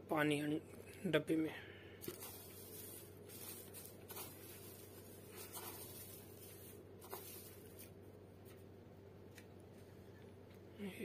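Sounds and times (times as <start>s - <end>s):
dry straw rustling: 2.0s - 8.0s.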